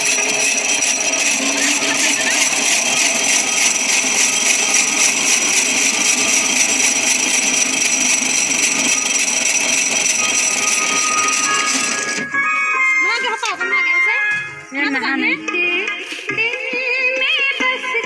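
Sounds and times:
cotton candy machine whining: 0:00.0 - 0:13.9.

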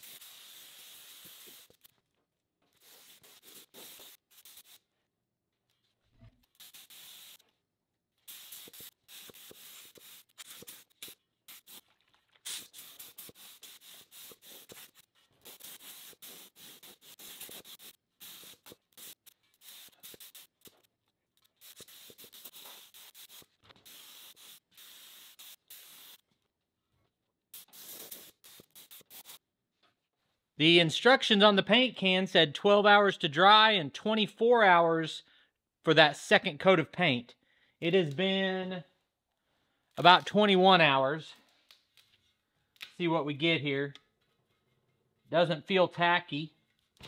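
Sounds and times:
spray gun hissing: 0:00.0 - 0:01.8, 0:02.8 - 0:04.8, 0:06.6 - 0:07.4, 0:08.2 - 0:11.9, 0:12.5 - 0:20.7, 0:21.6 - 0:26.2, 0:27.6 - 0:29.4.

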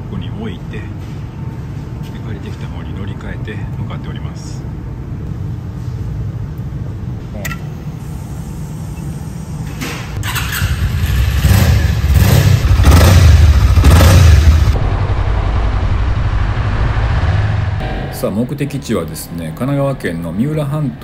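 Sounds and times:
motorcycle engine rumbling: 0:10.2 - 0:21.0.

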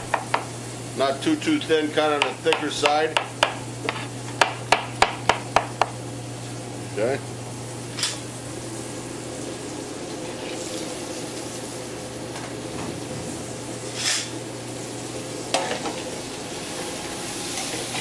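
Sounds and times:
vegetables sizzling in skillet: 0:00.0 - 0:01.6, 0:07.4 - 0:18.0.

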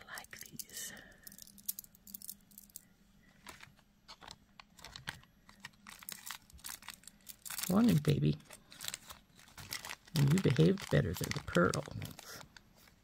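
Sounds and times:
stone beads clicking together: 0:00.1 - 0:02.8
plastic bag rustling: 0:03.3 - 0:13.0.

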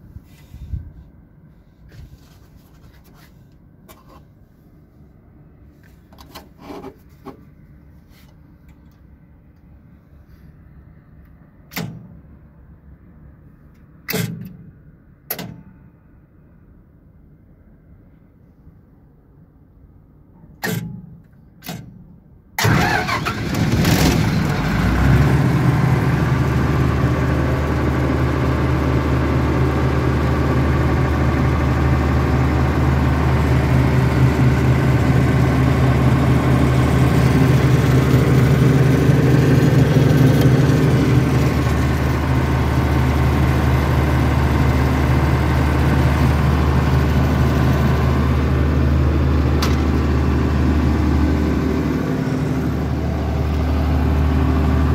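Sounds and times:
starter cranking engine: 0:22.6 - 0:25.3
generator engine running steadily: 0:22.6 - 0:54.9.

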